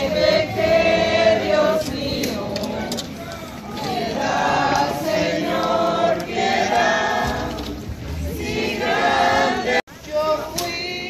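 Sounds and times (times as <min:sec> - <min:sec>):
crowd singing a hymn: 0:00.0 - 0:11.0.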